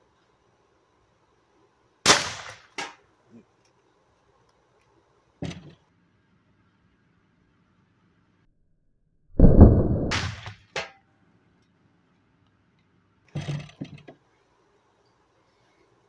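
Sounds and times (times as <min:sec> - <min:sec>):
paintball marker firing cracks: 0:02.1 - 0:03.0.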